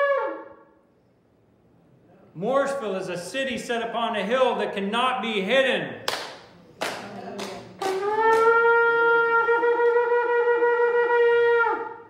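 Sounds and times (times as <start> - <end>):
ram's horn blown: 0.0 - 0.6, 7.8 - 12.0.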